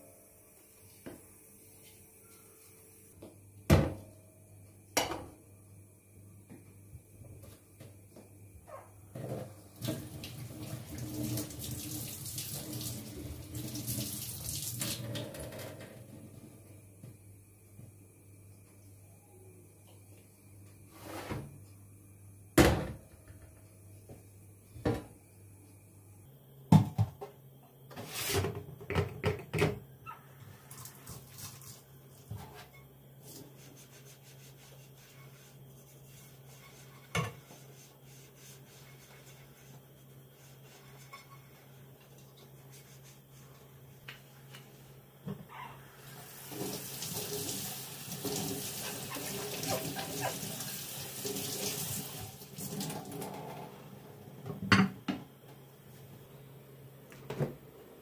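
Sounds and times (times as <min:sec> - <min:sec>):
tap running water into sink: 0:09.8 - 0:15.5, 0:46.4 - 0:53.4.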